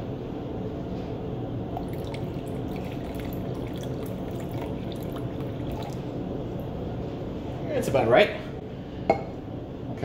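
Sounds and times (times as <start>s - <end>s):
low room hum: 0.0s - 10.0s
water trickling into a bottle: 1.8s - 6.7s.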